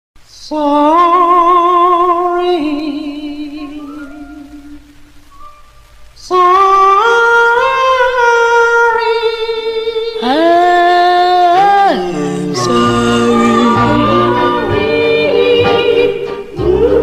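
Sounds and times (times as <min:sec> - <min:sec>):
vocal group singing harmony: 0:09.4 - 0:17.0.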